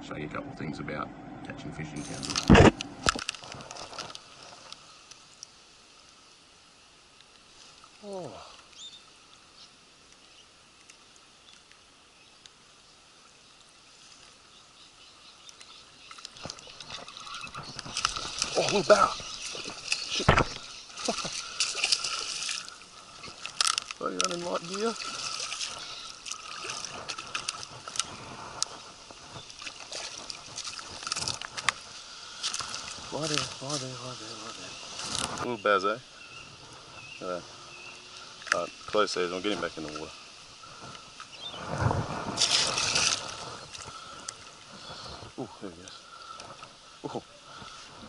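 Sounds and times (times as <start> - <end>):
faint background hiss: 0.0 - 48.0
rustling: 2.0 - 5.5, 16.1 - 35.5, 36.5 - 46.8
fish thrashing and splashing: 16.1 - 34.0, 42.2 - 44.7.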